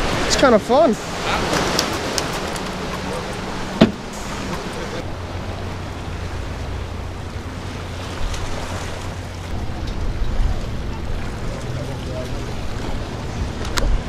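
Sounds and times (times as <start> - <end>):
small waves washing on rocks: 0.0 - 9.6
low steady hum: 1.0 - 14.0
wind on microphone: 1.0 - 14.0.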